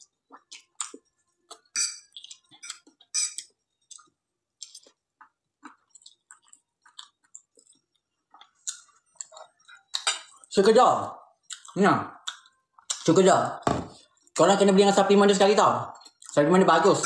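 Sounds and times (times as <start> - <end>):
wet chewing mouth noises: 0.0 - 10.2, 11.4 - 13.0.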